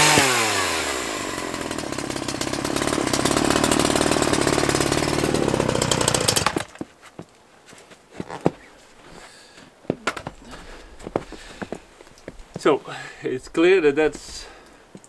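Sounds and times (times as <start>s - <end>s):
chainsaw engine running: 0.0s - 6.7s.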